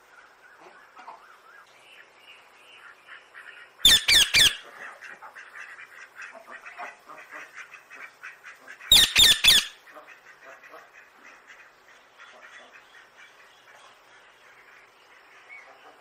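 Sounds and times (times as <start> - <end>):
parakeets screeching: 3.8 - 4.6, 8.9 - 9.8
parakeets chattering: 3.8 - 4.7, 8.9 - 9.8.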